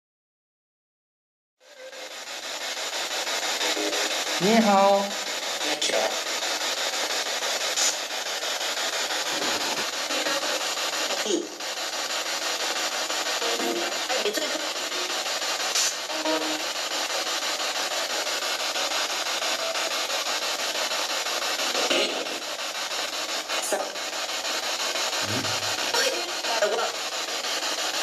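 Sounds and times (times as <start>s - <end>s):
radio static hissing: 1.6s - 28.0s
voice-like snatches: 25.2s - 25.9s.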